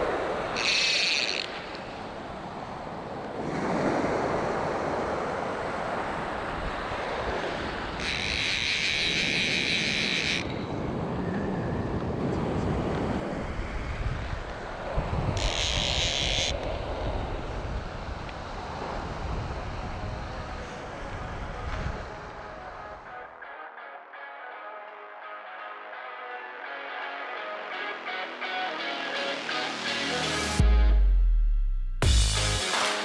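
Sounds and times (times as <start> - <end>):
fly reel buzzing: 0.6 - 2.0, 8.0 - 10.7, 15.4 - 16.6
wind buffeting microphone: 10.4 - 22.8.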